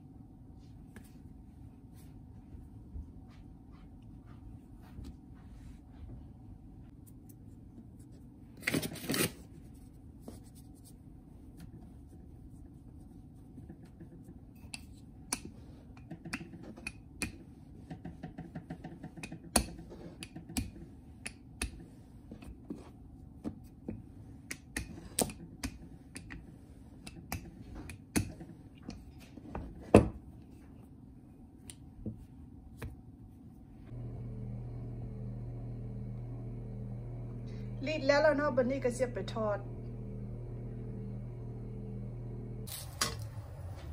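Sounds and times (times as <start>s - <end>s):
rolling pin rolling dough: 11.0s - 30.8s
low hum: 33.3s - 43.9s.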